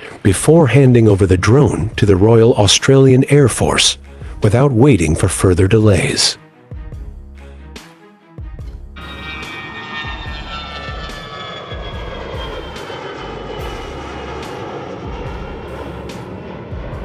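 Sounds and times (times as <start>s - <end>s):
drone jet engine flying past: 9.0s - 17.0s.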